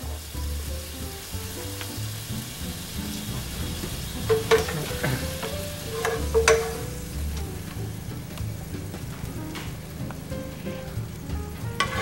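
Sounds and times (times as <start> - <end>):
mushrooms sizzling in a frying pan: 0.0 - 12.0
spatula stirring: 3.3 - 8.4, 9.8 - 12.0
spatula knocking against pan: 4.2 - 7.0.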